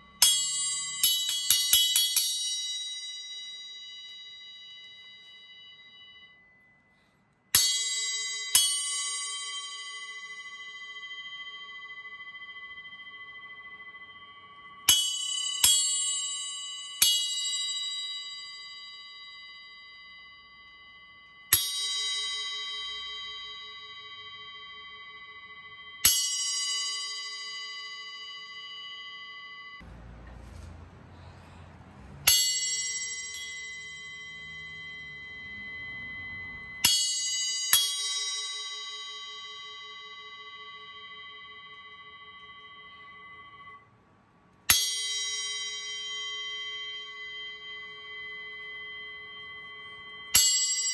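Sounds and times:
bell cymbal struck with drumstick: 0.0 - 30.7, 32.1 - 43.8, 44.7 - 50.9.

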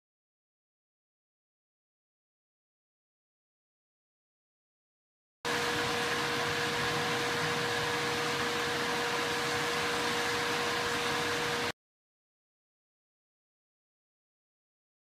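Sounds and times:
fan noise: 5.5 - 11.7
pool pump motor humming: 5.5 - 11.7.

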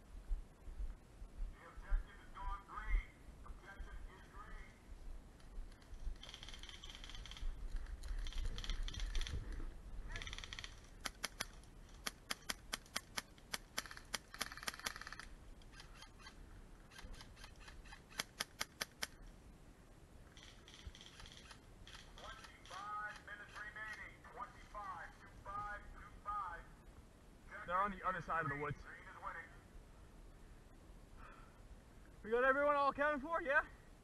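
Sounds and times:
airsoft guns snapping shots: 10.2 - 15.3, 18.1 - 19.2.

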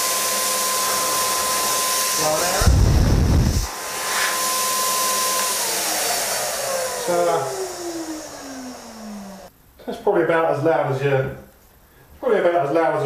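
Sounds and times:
paint sprayer turbine whine: 0.0 - 9.5.

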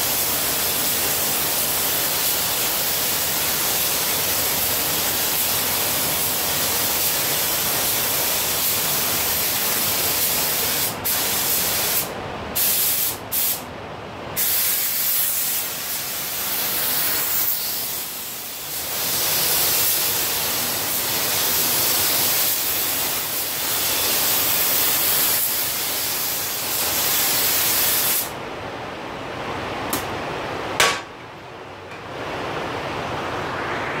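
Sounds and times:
spray gun hissing: 0.0 - 13.6, 14.4 - 28.4
low rush of air: 28.2 - 34.0.

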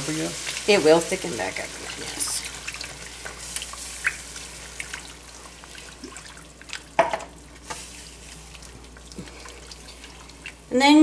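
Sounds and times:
gravy sizzling in a frying pan: 0.0 - 11.0.

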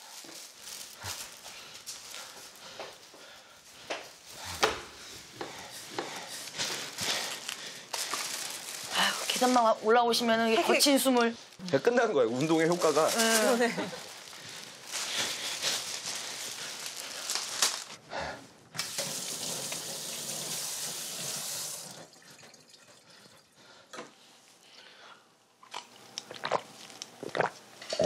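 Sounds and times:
tap water running into sink: 18.8 - 23.0.

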